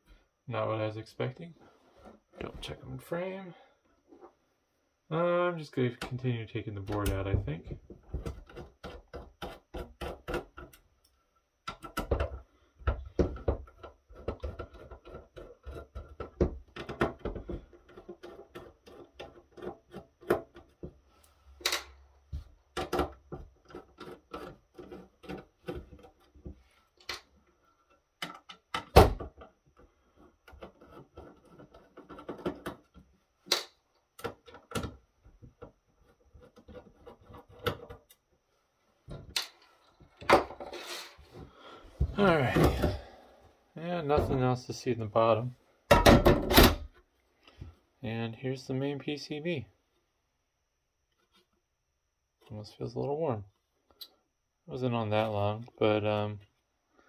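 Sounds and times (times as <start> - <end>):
clicks and knocks of handling: 6.0 - 21.0, 21.6 - 38.3.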